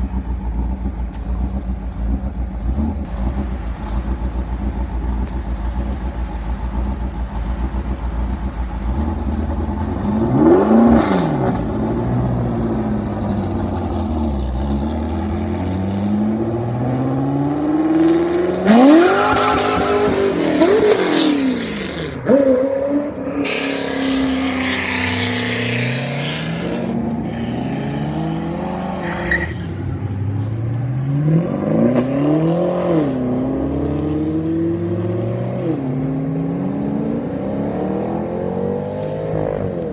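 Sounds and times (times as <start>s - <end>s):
car engines revving: 0.0s - 39.9s.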